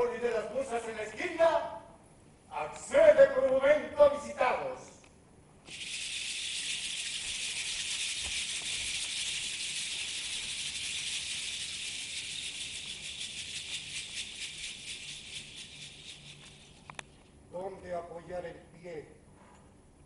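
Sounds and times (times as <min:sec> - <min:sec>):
percussion shaker rattling: 0:05.6 - 0:17.4.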